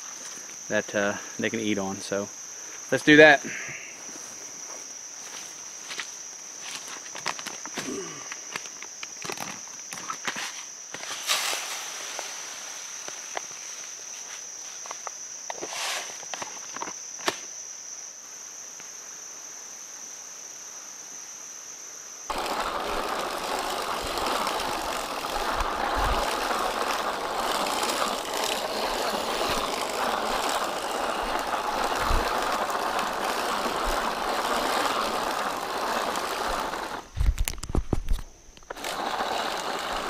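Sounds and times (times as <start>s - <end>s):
crickets chirping: 0.0s - 40.0s
seed spreader whirring: 10.9s - 13.4s, 22.3s - 40.0s.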